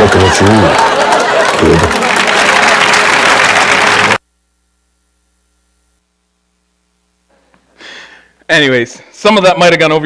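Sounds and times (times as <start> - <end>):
audience applause: 0.0 - 4.2
faint mains hum: 4.2 - 10.0.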